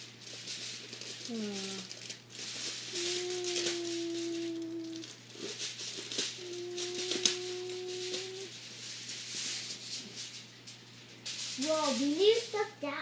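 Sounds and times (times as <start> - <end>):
toy pieces rattling and rustling: 0.0 - 13.0
child humming dispenser noise: 1.3 - 1.9, 2.9 - 5.2, 6.2 - 8.5.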